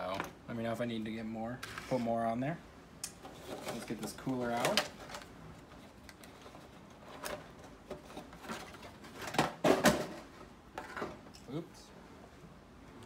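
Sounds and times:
cardboard packaging rustling: 3.3s - 10.3s.

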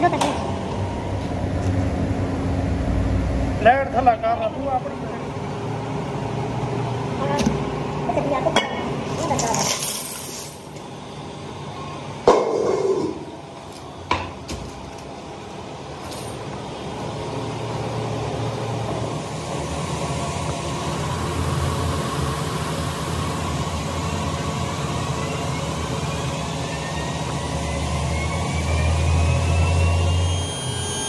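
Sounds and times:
factory machinery humming: 0.0s - 31.0s
faint rising whine: 16.6s - 31.0s.

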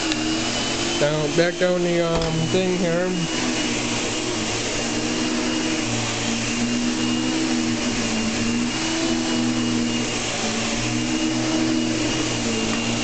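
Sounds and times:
vacuum cleaner running on carpet: 0.0s - 13.0s.

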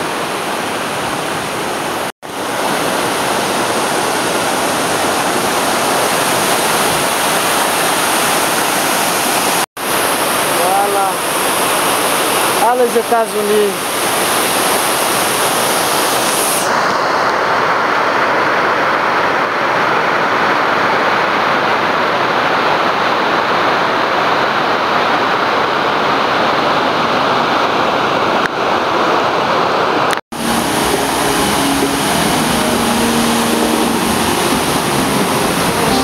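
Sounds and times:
water pouring down spillway: 2.3s - 16.9s.

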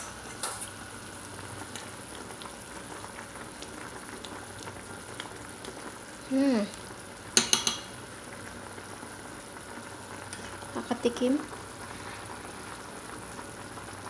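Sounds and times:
soup boiling in a pot: 0.0s - 14.0s
metal spoon clinking against pot: 7.4s - 7.9s.

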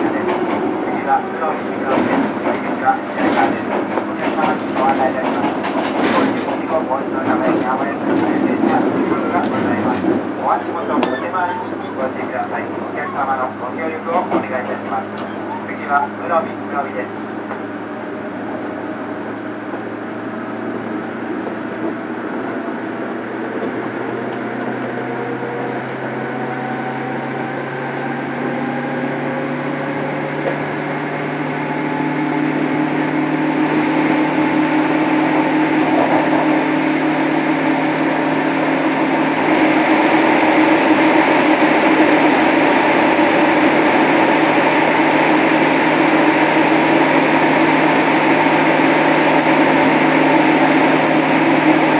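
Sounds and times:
electric train motor whine: 23.6s - 38.6s.

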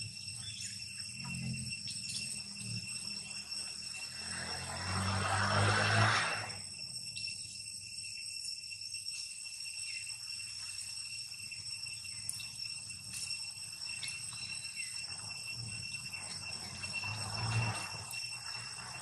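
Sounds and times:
high-pitched insect drone: 0.0s - 19.0s
faint chirps and clicks: 0.4s - 2.8s, 12.1s - 13.3s.

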